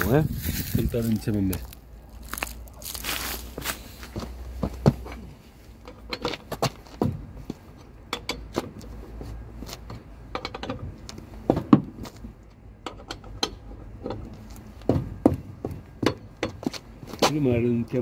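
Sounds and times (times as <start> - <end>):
car jack metal clinks: 5.0 - 8.8, 9.9 - 10.9, 12.8 - 16.7.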